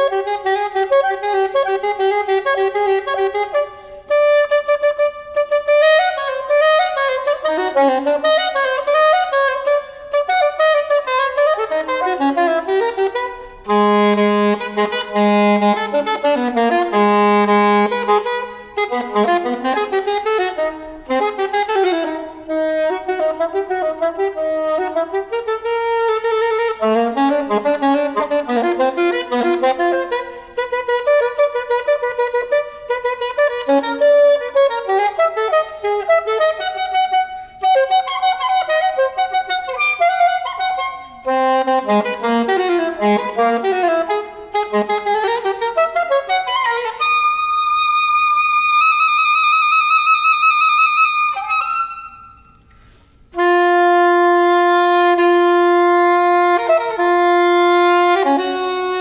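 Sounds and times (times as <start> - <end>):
soprano saxophone playing: 0.0 - 59.0.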